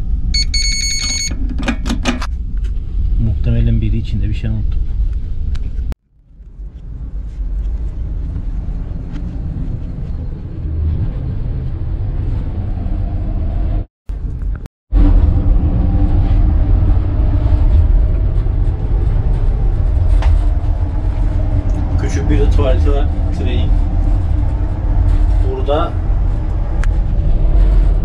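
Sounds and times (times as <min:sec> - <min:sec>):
train rumble inside carriage: 0:06.5 - 0:28.0.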